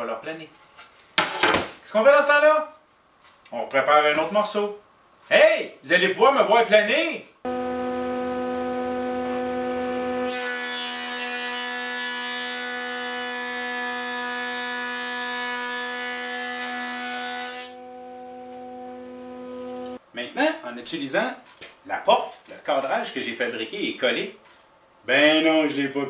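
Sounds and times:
planer motor whine: 7.5 - 10.4, 17.6 - 20.0.

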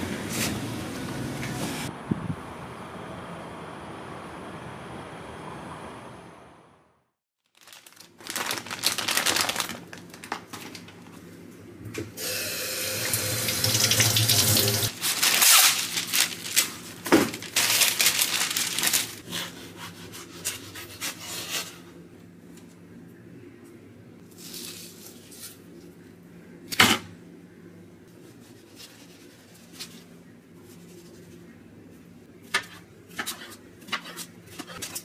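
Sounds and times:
parchment paper rustling: 7.4 - 11.3, 14.9 - 21.6, 28.1 - 31.5
tap water running: 12.2 - 14.9.

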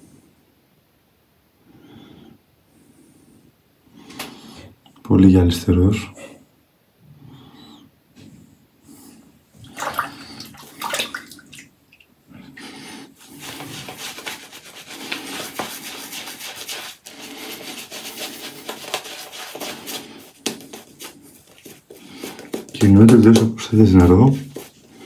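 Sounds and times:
shaving brush swishing lather: 13.2 - 25.0.

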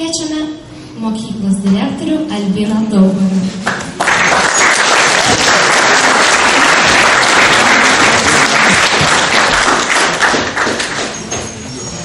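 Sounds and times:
audience applauding: 3.7 - 11.3.

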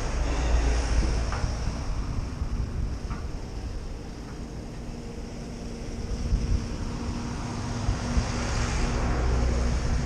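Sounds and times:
wind thumps on microphone: 0.8 - 4.4, 6.1 - 10.0.

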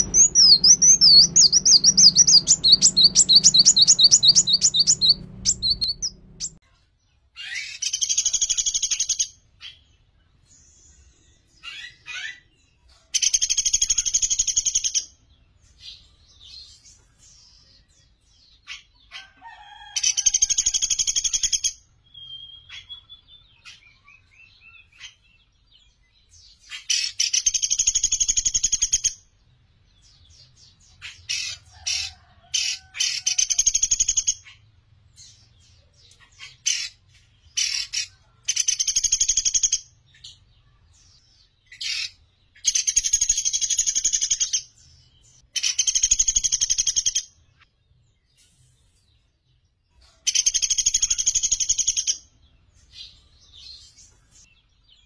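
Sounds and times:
woodpecker rattling trills: 0.0 - 6.6.

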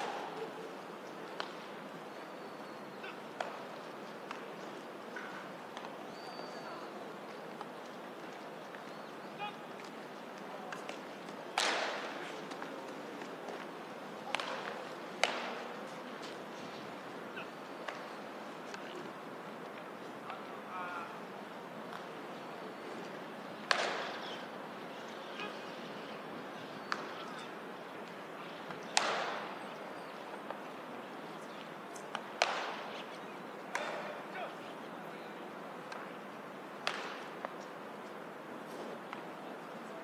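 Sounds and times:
baseballs popping into mitts: 1.3 - 1.6, 3.4 - 4.5, 10.7 - 16.4, 17.8 - 18.1, 23.7 - 24.2, 26.9 - 27.2, 28.7 - 29.6, 32.0 - 34.2, 36.8 - 37.6
baseball smacking into glove: 11.6 - 12.7, 14.3 - 15.6, 23.7 - 24.2, 28.7 - 29.5, 32.0 - 32.9, 33.7 - 34.2, 36.8 - 37.6.

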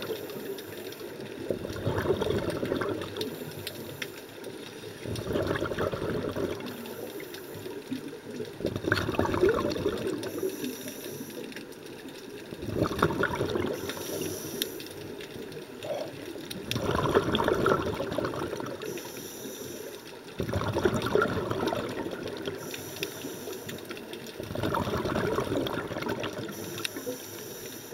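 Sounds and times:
exhaled bubbles rushing: 1.3 - 3.6, 5.0 - 7.2, 7.8 - 10.6, 12.4 - 14.3, 15.5 - 19.1, 20.3 - 27.1
faint hiss of inhalation: 3.2 - 5.0, 6.7 - 7.8, 10.2 - 11.6, 13.7 - 15.2, 18.8 - 20.2, 22.5 - 24.0, 26.5 - 27.9.

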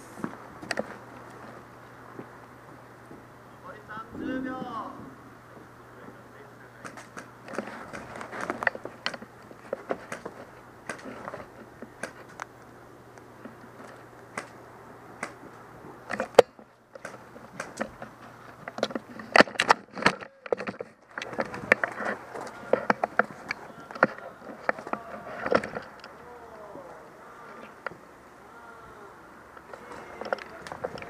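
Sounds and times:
low steady hum: 3.5 - 6.4.

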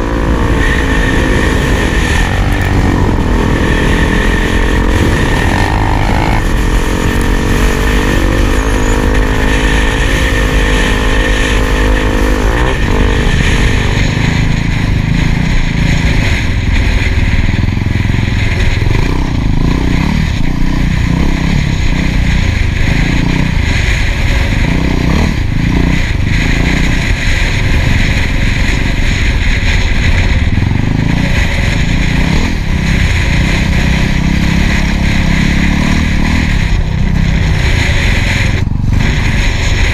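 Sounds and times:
motorcycle engine running: 0.0 - 39.9
wind on microphone: 0.0 - 39.9.

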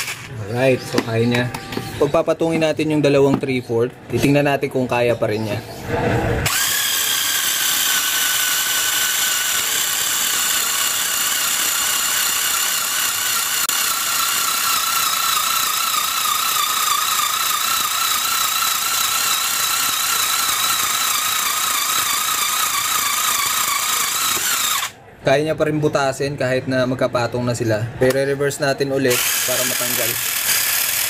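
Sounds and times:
cordless screwdriver drilling wood: 6.5 - 25.0, 29.1 - 31.0.

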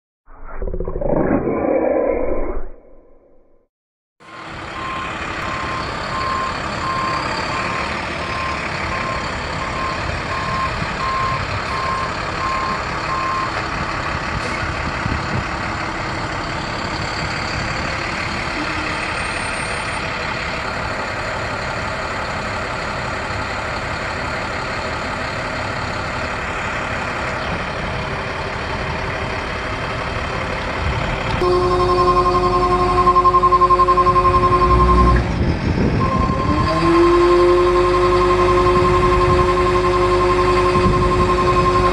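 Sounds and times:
diesel truck engine running: 4.3 - 41.9
reverse alarm beeping: 4.7 - 13.5, 31.4 - 35.4, 36.0 - 41.9.

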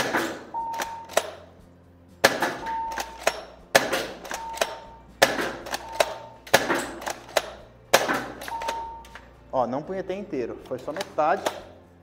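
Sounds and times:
airsoft shotgun shots: 0.0 - 0.5, 2.2 - 8.5
short electronic beep: 8.5 - 9.1.

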